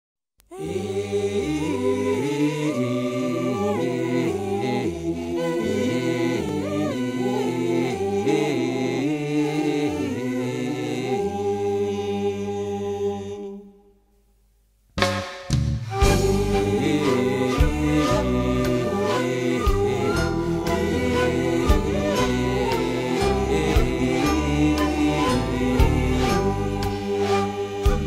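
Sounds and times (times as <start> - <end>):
vocal group singing a cappella: 0.5 - 13.9, 15.9 - 28.0.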